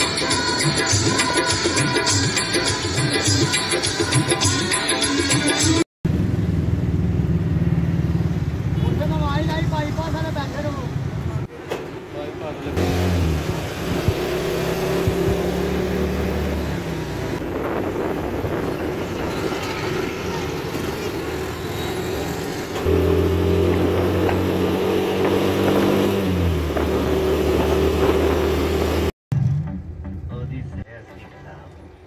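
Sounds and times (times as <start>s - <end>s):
road noise: 6.0s - 32.0s
motor rickshaw engine running: 6.1s - 10.6s, 12.8s - 30.4s.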